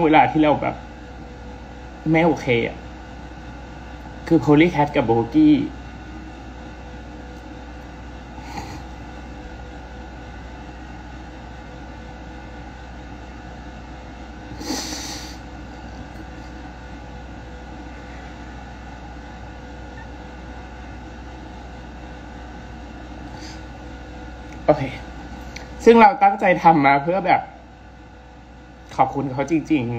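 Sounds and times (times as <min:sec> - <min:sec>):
steady room hum: 0:00.0 - 0:29.9
woman sniffing: 0:08.4 - 0:09.0, 0:14.5 - 0:15.4
woman crying quietly: 0:08.4 - 0:09.1.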